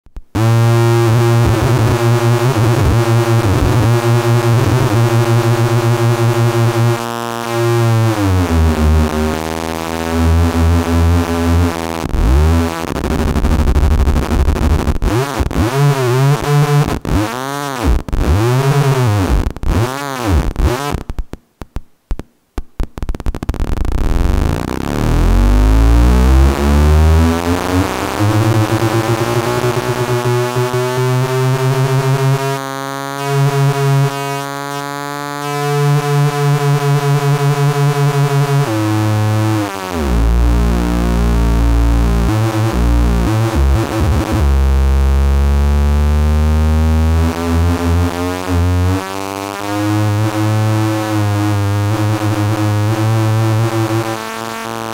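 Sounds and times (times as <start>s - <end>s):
buzzy electronic tone gliding: 23.7s - 54.9s.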